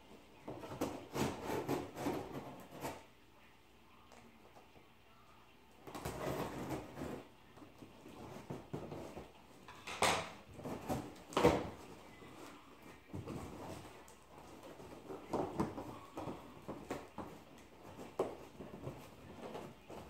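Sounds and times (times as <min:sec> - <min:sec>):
cardboard scraping and rustling: 0:00.5 - 0:03.1, 0:05.9 - 0:07.3
sharp cardboard noises: 0:00.5 - 0:03.1.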